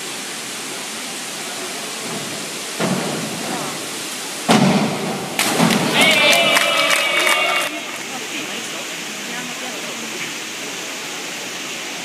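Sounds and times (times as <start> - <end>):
indoor pool hall noise: 1.0 - 8.8
divers splashing into water: 1.8 - 8.4
springboard banging: 2.0 - 7.3.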